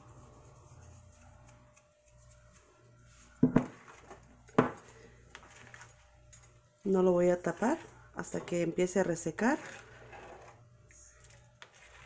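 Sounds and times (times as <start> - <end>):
spoon stirring rice in broth: 9.3 - 12.0.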